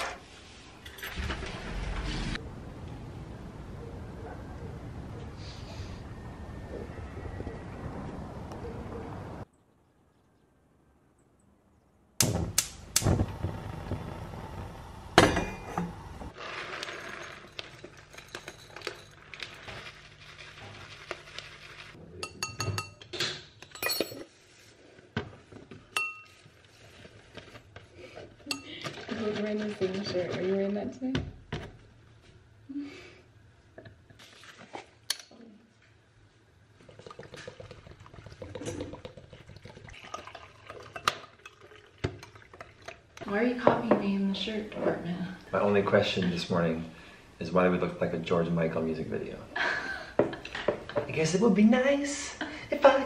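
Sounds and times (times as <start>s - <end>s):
soft rustling pour: 16.4s - 22.0s, 36.2s - 43.2s
ceramic bowl and glass clinking: 22.2s - 24.3s, 25.9s - 26.4s
milk pouring into bowl: 36.8s - 43.0s.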